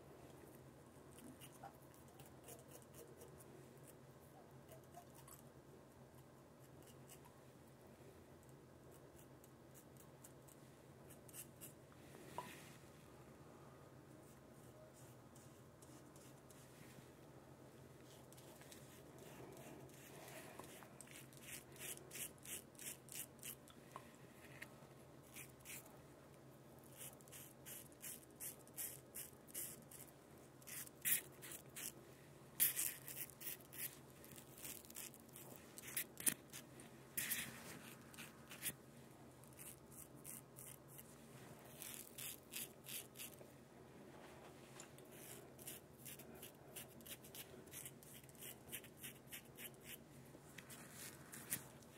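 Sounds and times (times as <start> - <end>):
razor scraping stubble: 26.9 - 32.0, 32.6 - 38.8, 39.5 - 41.1, 41.7 - 43.4.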